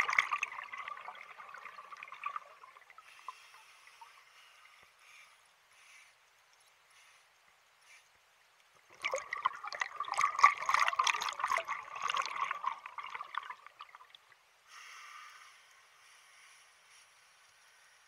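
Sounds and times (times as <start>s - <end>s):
bubbles rushing from regulator: 0.0s - 3.0s, 8.9s - 14.2s
regulator inhale hiss: 3.0s - 6.3s, 6.9s - 8.1s, 14.6s - 18.0s.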